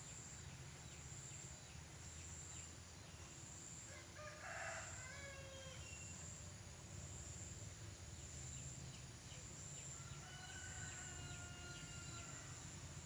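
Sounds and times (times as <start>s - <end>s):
distant rooster crowing: 3.9s - 6.0s, 10.0s - 12.7s.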